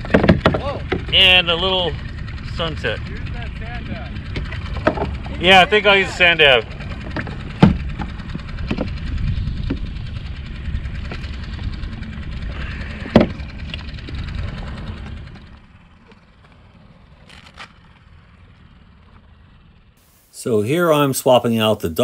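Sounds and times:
sharp handling knocks: 0:00.0 - 0:01.2
wind buffeting microphone: 0:00.0 - 0:17.2.

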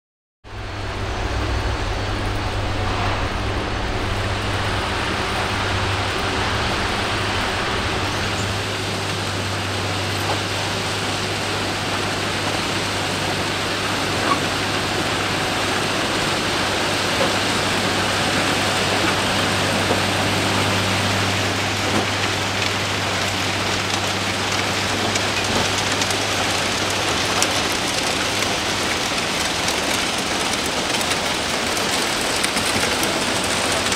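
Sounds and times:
low engine hum: 0:00.4 - 0:33.9
dense even hiss: 0:00.5 - 0:10.4.

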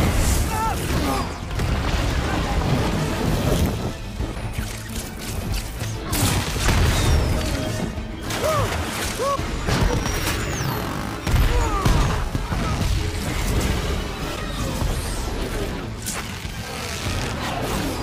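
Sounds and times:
film score music: 0:00.0 - 0:18.0.

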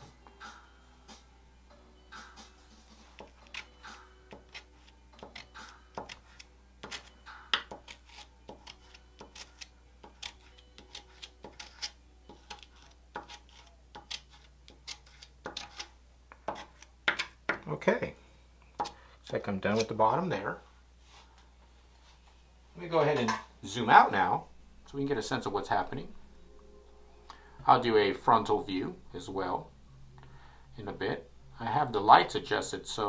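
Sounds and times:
palette knife scraping paper: 0:07.7 - 0:15.9
steady low hum: 0:17.7 - 0:33.0.

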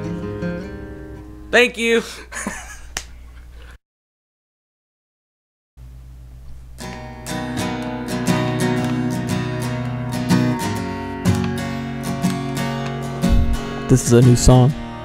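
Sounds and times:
acoustic guitar strumming chords: 0:00.0 - 0:01.8, 0:06.8 - 0:15.0.

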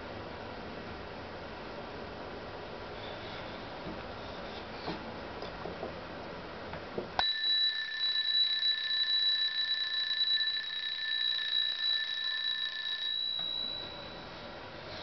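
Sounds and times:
alarm clock bell ringing: 0:07.2 - 0:14.6.

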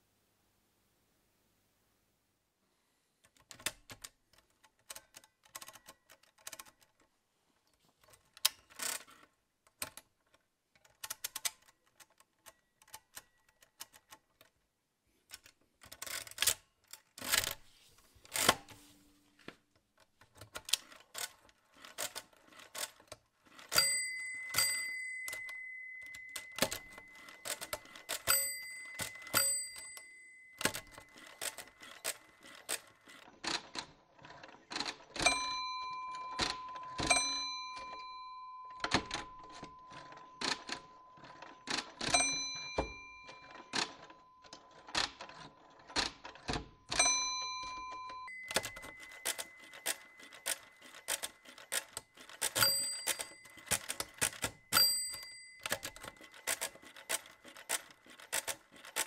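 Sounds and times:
mechanical calculator clacking: 0:03.2 - 0:07.1, 0:08.0 - 0:14.5, 0:15.3 - 0:17.6, 0:19.8 - 0:59.0
calculator bell ringing: 0:20.8 - 0:33.3, 0:34.7 - 0:59.0.

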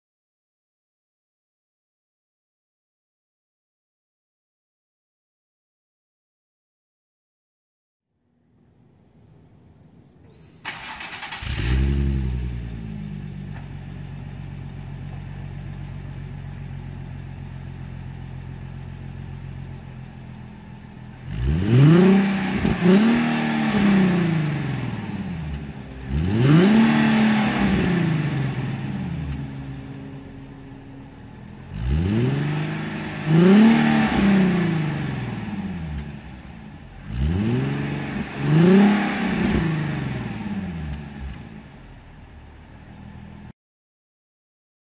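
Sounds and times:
car engine idling: 0:08.5 - 0:21.6, 0:22.3 - 0:38.6, 0:40.2 - 0:43.5
car engine revving: 0:09.2 - 0:43.0.

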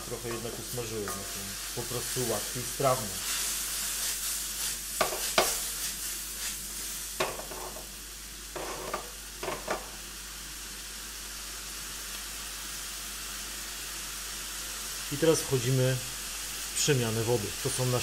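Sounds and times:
vegetables sizzling in a wok: 0:00.0 - 0:18.0
utensil knocking against wok: 0:05.0 - 0:05.6, 0:07.2 - 0:07.8, 0:08.6 - 0:09.9.

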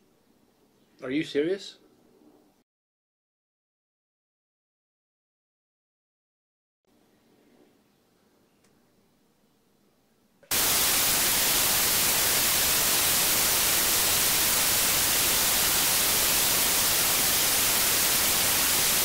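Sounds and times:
tv static hiss: 0:10.5 - 0:19.0.

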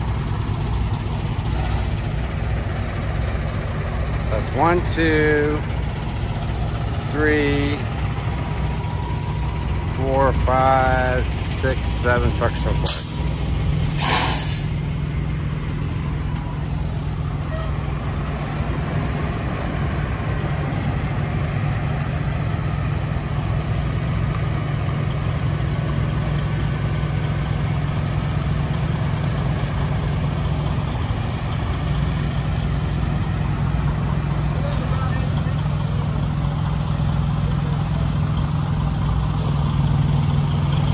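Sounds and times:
diesel engine running at low revs: 0:00.0 - 0:40.9
air hiss: 0:13.8 - 0:14.7.

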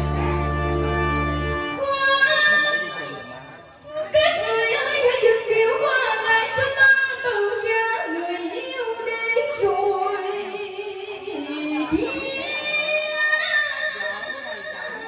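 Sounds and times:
backing music: 0:00.0 - 0:01.9
woman singing: 0:04.1 - 0:14.0.

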